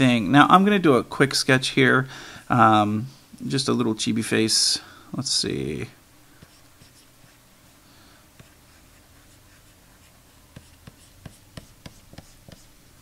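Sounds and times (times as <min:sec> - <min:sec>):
tablet pen scratching: 0:06.4 - 0:07.4, 0:08.4 - 0:12.7.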